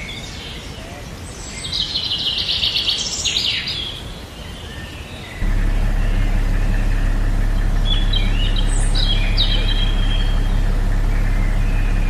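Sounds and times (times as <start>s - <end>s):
birds chirping: 0.0s - 12.0s
low rumble: 5.4s - 12.0s.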